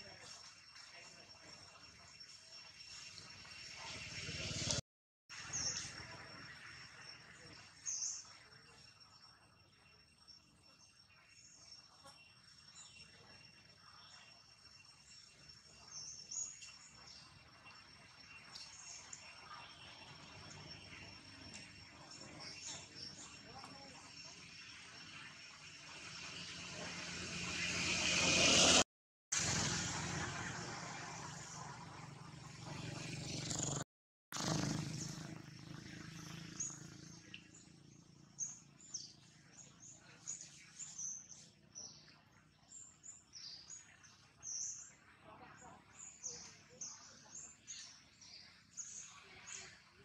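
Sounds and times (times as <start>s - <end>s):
motor vehicle passing: 25.6s - 28.8s, 29.4s - 33.8s, 34.4s - 38.4s.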